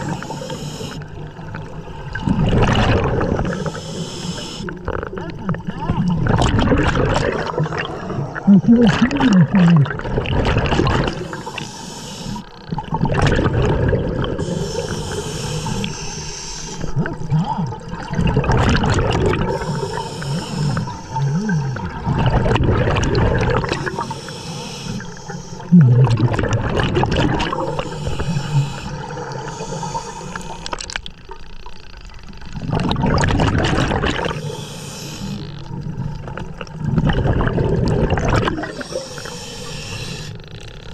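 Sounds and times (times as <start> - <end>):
regulator hissing inhalations: 0.0 - 1.1, 3.5 - 4.8, 11.2 - 12.5, 14.4 - 16.9, 19.5 - 21.8, 23.8 - 25.7, 27.5 - 30.8, 34.3 - 35.5, 38.7 - 40.4
gurgling exhaled bubbles: 0.0 - 40.9.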